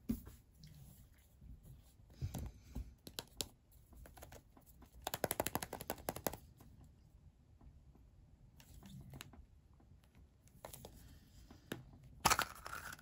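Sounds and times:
plastic capsule rattling: 0:12.2 - 0:13.0.

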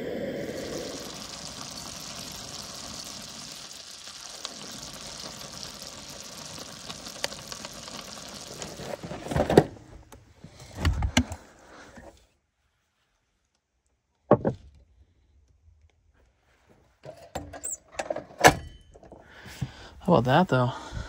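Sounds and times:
sauce sizzling in a skillet: 0:00.0 - 0:09.1.

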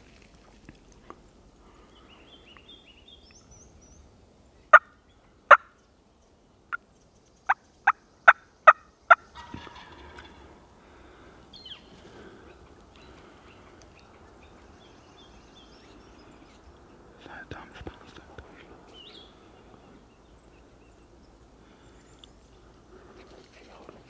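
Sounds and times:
faint songbird chirps: 0:01.2 - 0:10.4, 0:11.5 - 0:24.0
turkey call hen calls: 0:04.7 - 0:05.7, 0:07.5 - 0:10.5.

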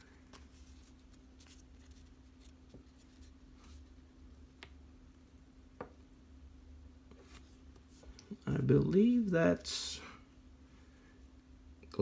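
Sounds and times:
trading cards rustling: 0:00.0 - 0:03.9
low steady hum: 0:00.0 - 0:12.0.

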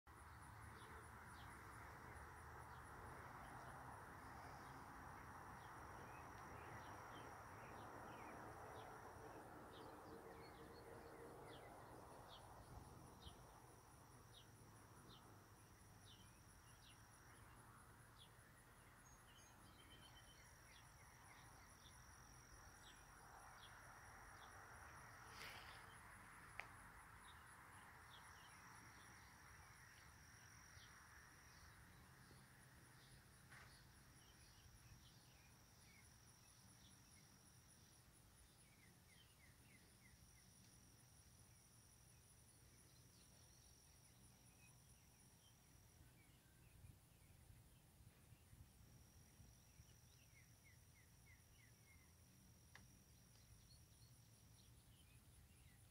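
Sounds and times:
insects trilling: 0:00.1 - 0:55.9.

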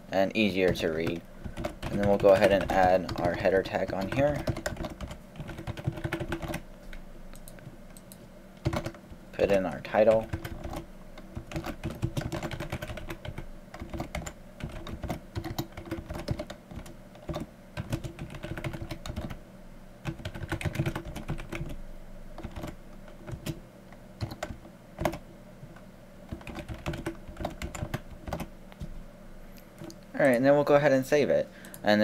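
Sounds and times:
faint steady hum: 0:00.0 - 0:32.0
keyboard typing: 0:00.6 - 0:06.6, 0:07.4 - 0:19.4, 0:20.0 - 0:21.8, 0:22.4 - 0:23.6, 0:24.2 - 0:25.2, 0:26.3 - 0:28.5.

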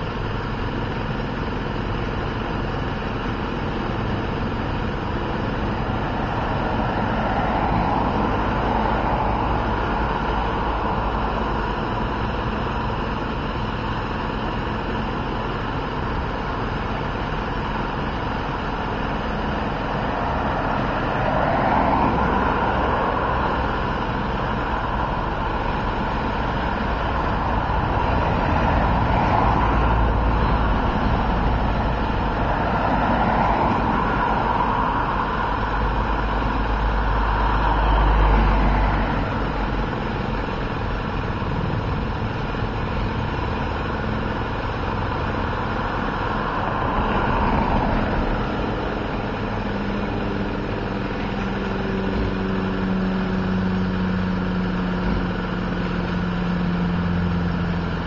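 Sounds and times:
vehicle engine idling: 0:00.0 - 0:58.0
vehicles passing close by: 0:00.0 - 0:58.0.

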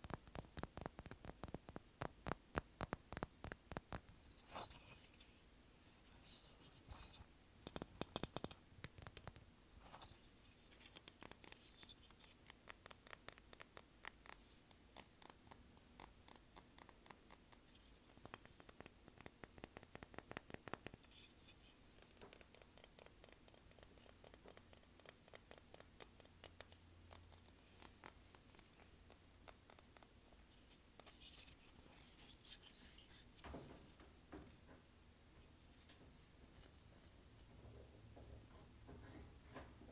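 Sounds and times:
fingernails tapping on figurine: 0:07.6 - 0:09.4.

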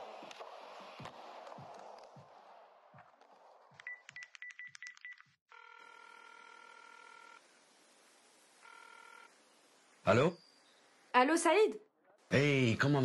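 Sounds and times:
phone ringing tone: 0:03.9 - 0:07.4, 0:08.6 - 0:09.4.

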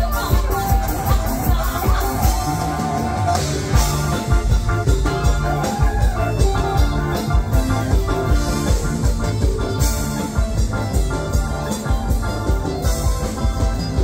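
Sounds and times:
bass line: 0:00.0 - 0:14.0
drum kit beat: 0:00.0 - 0:14.0.

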